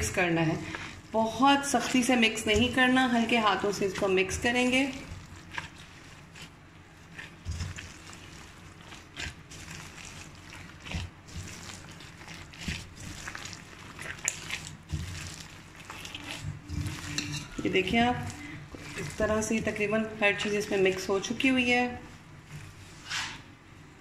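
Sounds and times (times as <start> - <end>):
hands mixing sticky dough: 0.0 - 23.7.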